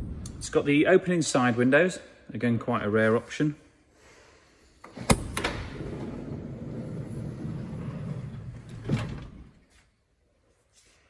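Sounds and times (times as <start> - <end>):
sliding door rumbling along rail: 5.8 - 9.6.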